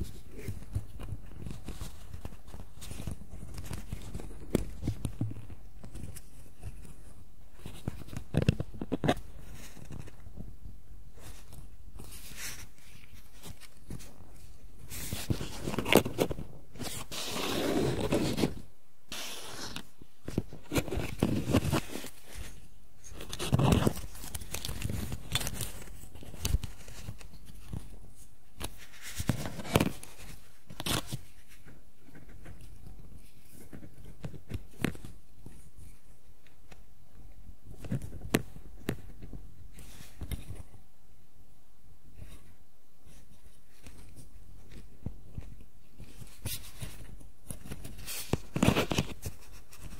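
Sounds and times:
fingers rustling on plastic: 11.1 - 36.8.

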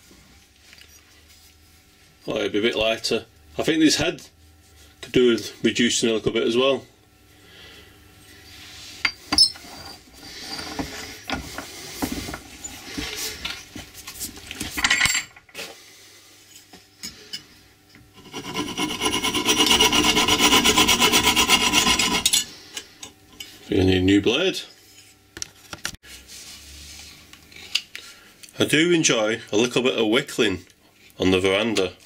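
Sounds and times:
hacksaw cutting metal: 18.2 - 22.5.

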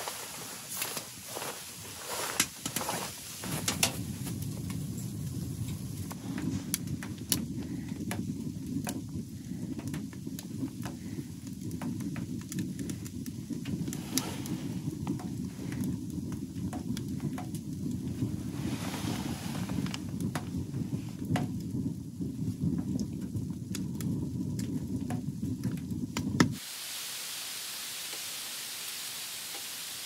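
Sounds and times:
wood fire crackling and popping: 0.0 - 26.6
steady low rumble: 0.1 - 26.6.

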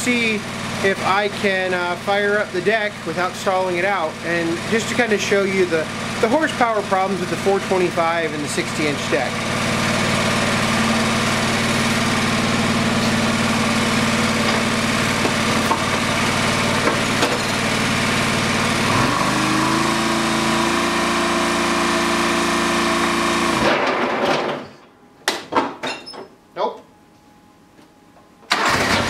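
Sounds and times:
garden tractor engine running: 0.0 - 23.7, 28.5 - 29.0
mower deck spinning up: 9.6 - 19.6.

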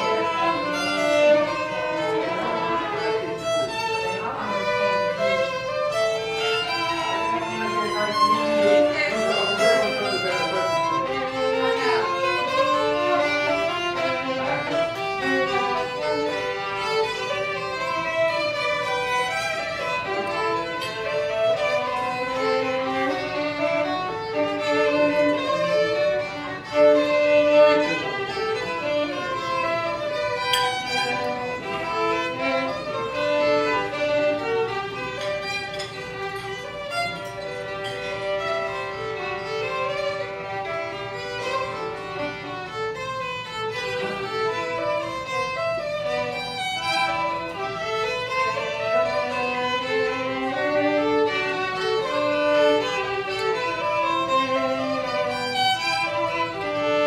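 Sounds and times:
two violins playing melody: 0.0 - 57.0.

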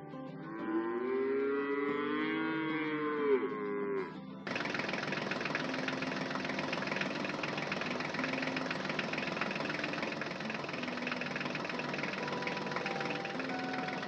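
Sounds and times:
tractor engine knocking chug: 4.5 - 14.0.

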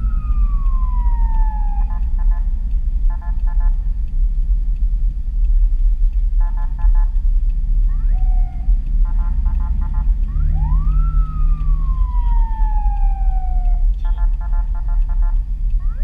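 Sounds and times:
police siren pulsing and wailing: 0.0 - 3.9, 7.8 - 16.0
road and engine rumble: 0.0 - 16.0.

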